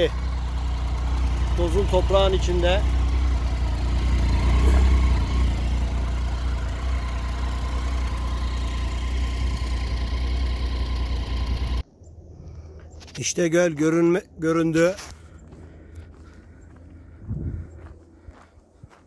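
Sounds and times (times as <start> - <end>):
motorcycle engine rumbling: 0.0 - 11.8
quiet outdoor background: 0.0 - 19.0.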